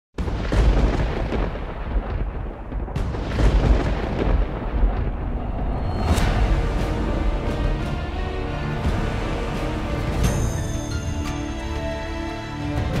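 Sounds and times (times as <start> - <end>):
sharp crack: 0.2 - 7.0
deep rumbling booms: 0.2 - 10.5.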